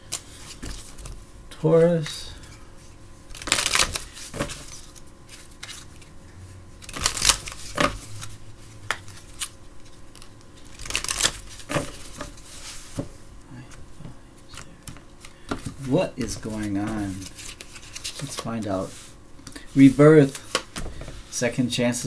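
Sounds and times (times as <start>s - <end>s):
cards being shuffled: 0.1s - 1.2s, 3.3s - 6.1s, 6.8s - 13.1s, 14.5s - 21.3s.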